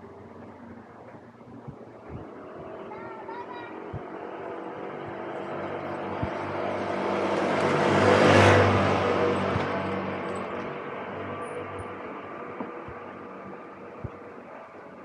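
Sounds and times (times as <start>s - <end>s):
motorbike passing by: 2.2s - 13.9s.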